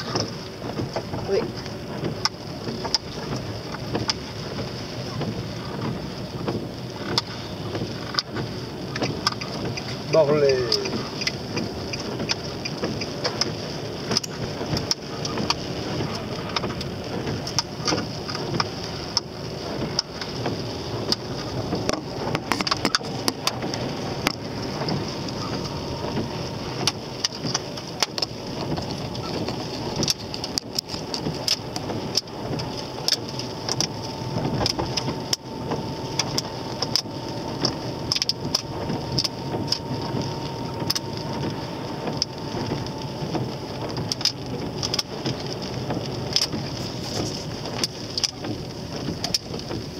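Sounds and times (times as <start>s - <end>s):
car engine and tyre hiss: 0.0s - 49.9s
rain ticking on windscreen: 0.0s - 49.9s
windscreen wipers sweeping: 0.0s - 49.9s
faint steady whine: 20.9s - 47.8s.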